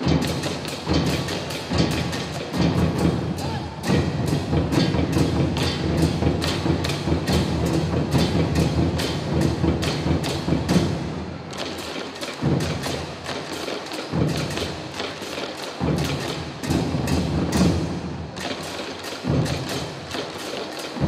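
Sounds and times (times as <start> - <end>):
heavy drum hits: 0.0 - 11.1
wooden clacking beat: 0.0 - 21.0.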